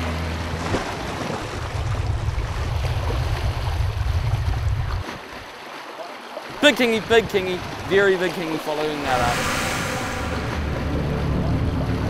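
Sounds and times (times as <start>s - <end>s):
low rumble: 9.0s - 12.0s.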